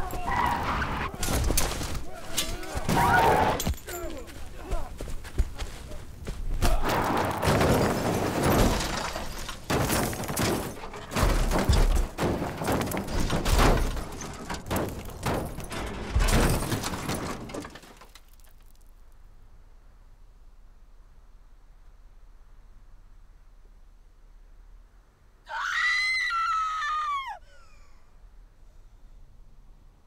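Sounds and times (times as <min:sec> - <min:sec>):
metal crunching: 0:00.0 - 0:04.6, 0:06.0 - 0:19.0
car crash impacts: 0:06.6 - 0:18.6
glass breaking: 0:07.3 - 0:18.5.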